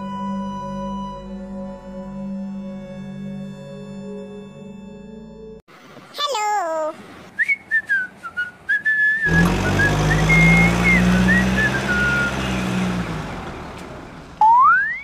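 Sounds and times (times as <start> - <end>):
low vehicle engine rumble: 7.0 - 14.7
whistled tune: 7.4 - 12.7, 14.4 - 15.0.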